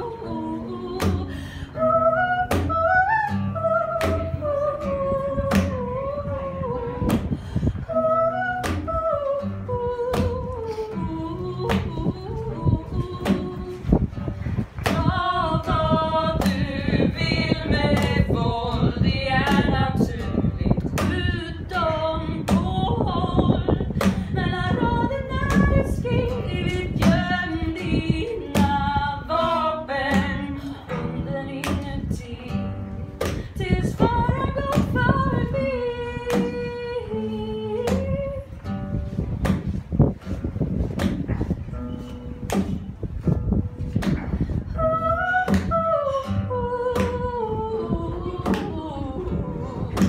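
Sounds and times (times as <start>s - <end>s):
woman singing: 0.0s - 14.1s, 14.8s - 38.7s, 44.0s - 50.0s
acoustic guitar strumming: 0.0s - 50.0s.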